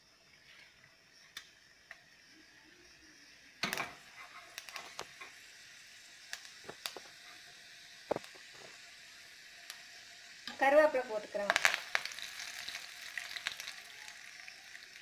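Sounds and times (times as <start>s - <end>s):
oil sizzling: 0.0s - 15.0s
sharp pops and crackles: 1.2s - 2.1s, 3.6s - 10.7s, 11.4s - 15.0s.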